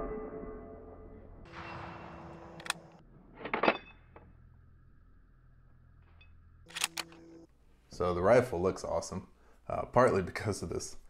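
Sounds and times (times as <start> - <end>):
rifle bolt clicks and clacks: 6.7 - 7.2.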